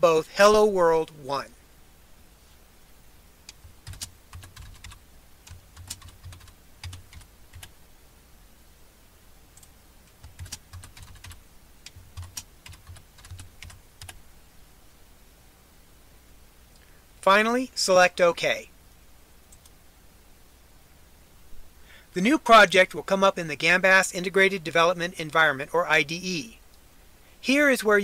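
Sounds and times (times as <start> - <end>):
typing on a computer keyboard: 3.5 - 7.7, 9.6 - 14.2.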